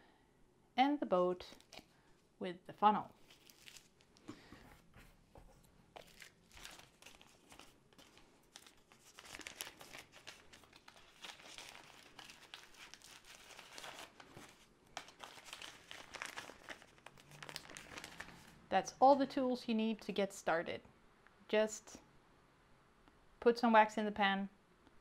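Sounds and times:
plastic zip bag crinkling: 3.1 - 4.2, 6.0 - 18.6.

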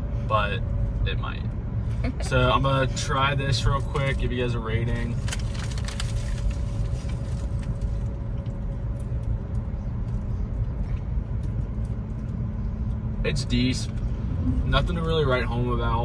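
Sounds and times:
car cabin road rumble: 0.0 - 16.0
paper bag crinkle: 5.0 - 7.8.

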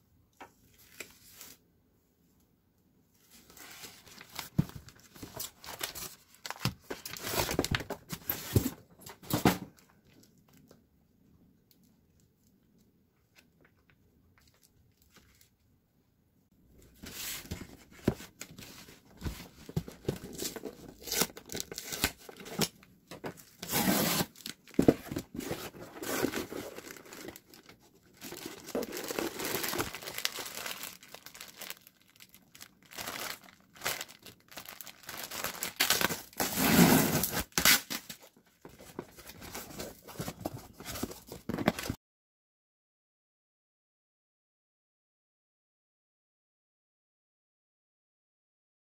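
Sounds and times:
box wrapping crinkling: 3.7 - 9.6, 17.0 - 42.0
packing tape ripping: 32.9 - 38.2.

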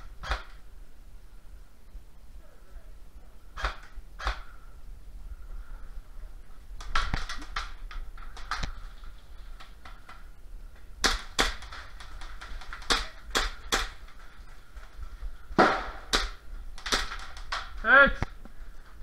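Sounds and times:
airsoft gun shots popping: 0.2 - 0.6, 3.6 - 4.5, 15.6 - 17.7.

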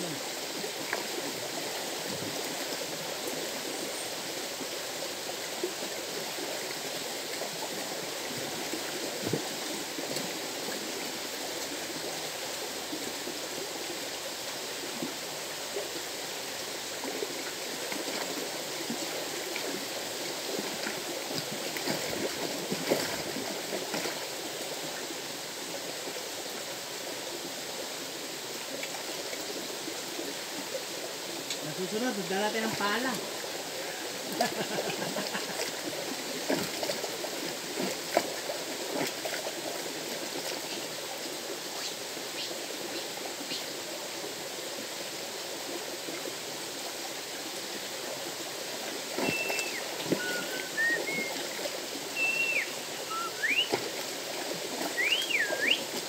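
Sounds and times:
river water rushing: 0.0 - 56.0.

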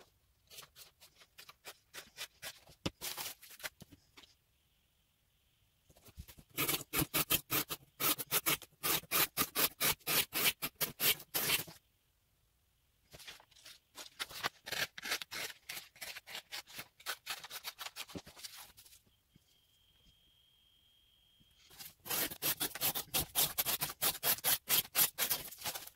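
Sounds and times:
knife slicing through cardboard: 6.5 - 11.8, 21.7 - 25.9.

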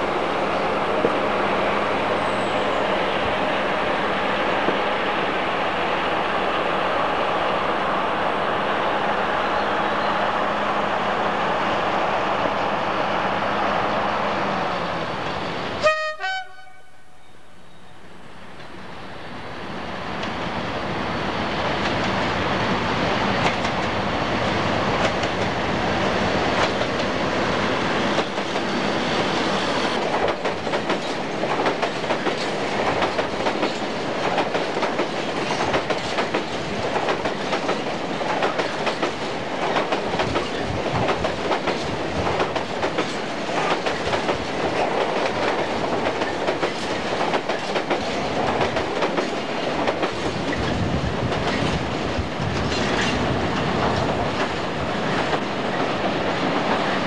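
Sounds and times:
diesel locomotive engine: 0.0 - 57.0
train wheels clacking over rail joints: 28.1 - 57.0.

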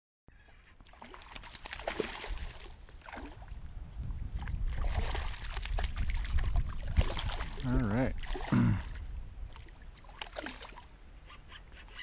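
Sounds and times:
water splashing and sloshing: 0.4 - 11.0.

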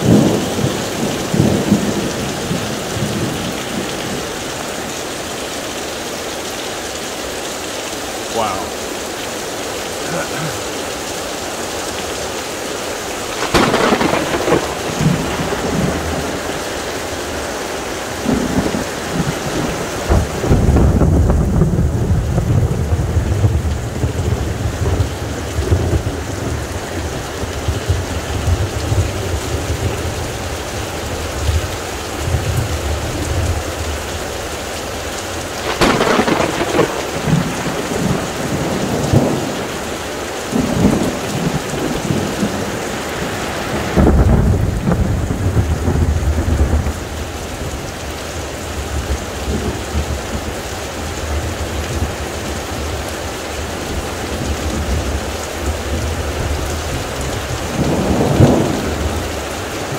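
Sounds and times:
deep rumble of thunder: 0.0 - 4.2, 13.4 - 16.7, 18.2 - 30.4, 35.6 - 39.8, 40.5 - 42.8, 43.8 - 47.8, 53.9 - 59.5
heavy rain pouring: 0.0 - 59.9
sharp thunder crack: 13.4 - 16.5, 35.6 - 39.5.

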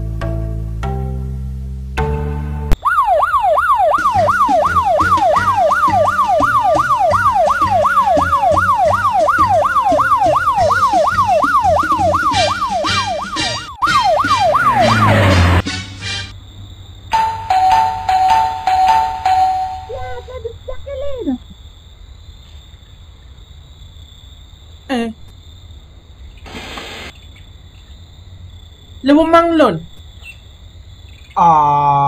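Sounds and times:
siren yelping: 2.8 - 15.6
rising whoosh: 13.8 - 15.8.

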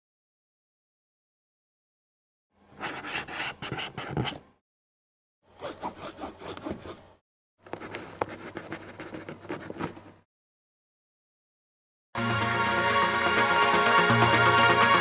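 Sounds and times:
scratchy scraping and rubbing: 2.8 - 4.4, 5.6 - 7.1, 7.7 - 10.2.

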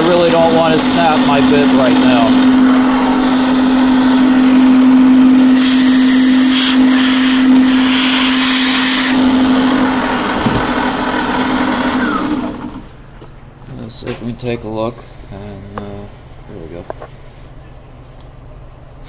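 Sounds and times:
milling machine motor running: 0.0 - 12.9.

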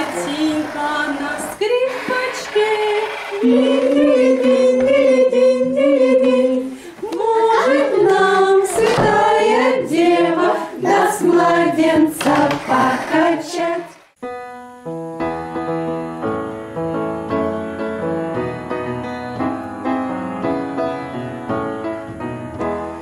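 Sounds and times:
piano music: 0.0 - 6.2, 12.7 - 23.0
women and children singing: 0.0 - 14.2.

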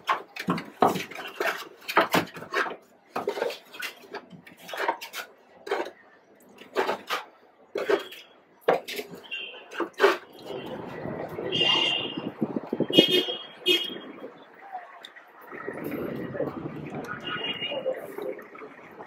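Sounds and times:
spoons scraping foam containers: 0.0 - 11.0.

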